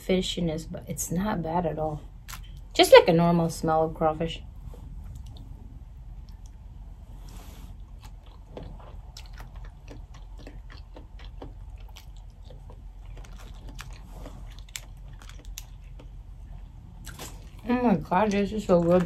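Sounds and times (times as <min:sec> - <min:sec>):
person chewing crawfish: 0:02.2 - 0:02.7, 0:07.7 - 0:17.7.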